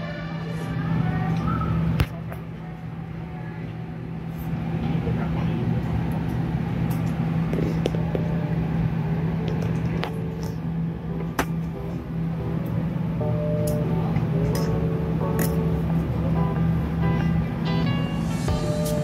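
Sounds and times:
background chatter: 0.0s - 8.5s
ventilation fans humming: 0.0s - 19.0s.

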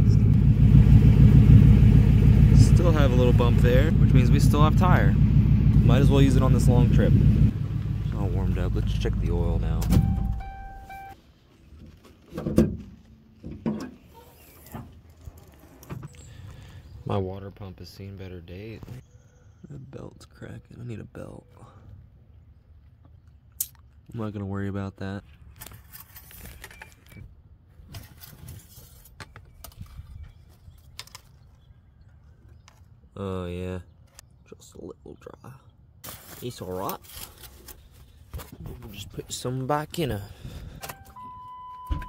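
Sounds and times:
car engine running: 0.0s - 11.2s
low steady rumble: 0.0s - 11.2s
car door and hood clunks: 9.7s - 11.0s, 40.8s - 42.0s
car warning chime: 9.9s - 11.2s, 40.8s - 42.0s.

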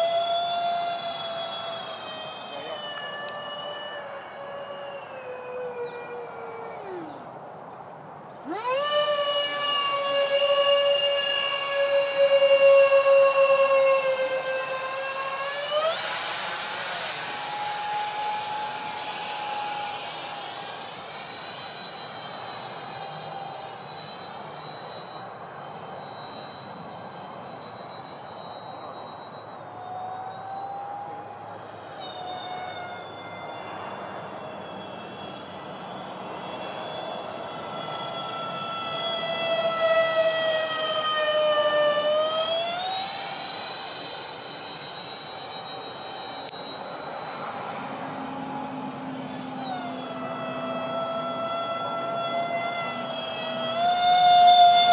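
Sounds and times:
model jet fan whining: 0.0s - 54.9s
rushing air: 15.8s - 26.0s.

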